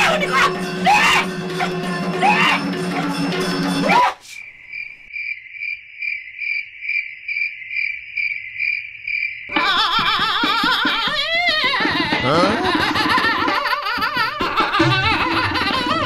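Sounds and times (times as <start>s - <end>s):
cricket chirping: 4.1s - 10.3s.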